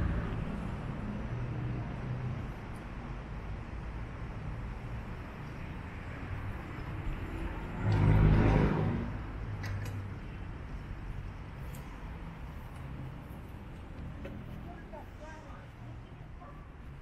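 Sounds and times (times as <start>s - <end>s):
street traffic rumbling: 0.0s - 17.0s
vehicle passing close by: 5.9s - 9.6s.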